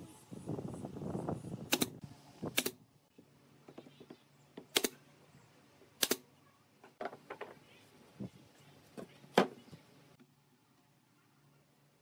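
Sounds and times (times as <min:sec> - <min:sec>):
nail gun firing into wood: 0:01.7 - 0:02.8.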